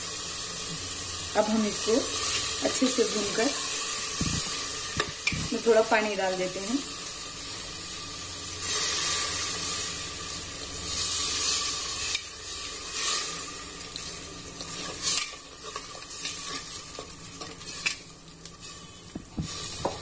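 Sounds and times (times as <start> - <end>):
water sizzling in hot oil: 0.0 - 20.0.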